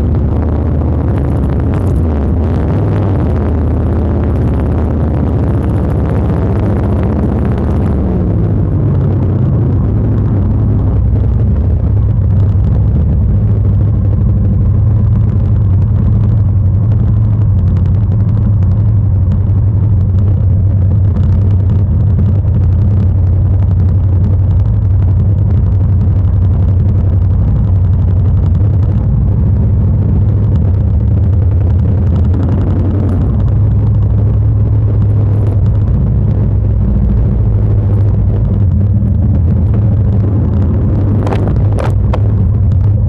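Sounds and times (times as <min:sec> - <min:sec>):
motorcycle engine drone: 0:00.0 - 0:43.0
wind noise on microphone: 0:00.0 - 0:43.0.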